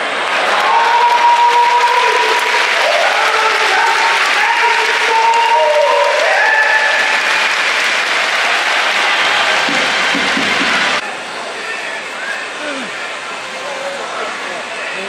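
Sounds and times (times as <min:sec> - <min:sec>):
stadium crowd clapping: 0:00.0 - 0:11.0.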